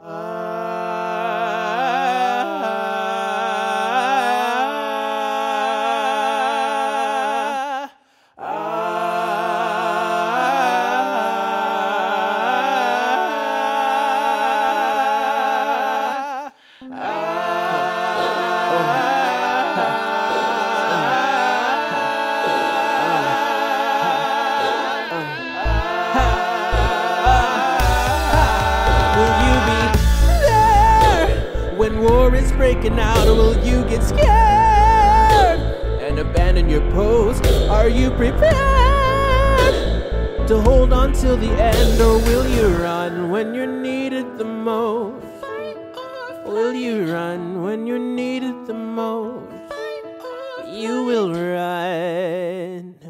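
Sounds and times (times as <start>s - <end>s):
male a cappella harmony: 0.0s - 53.0s.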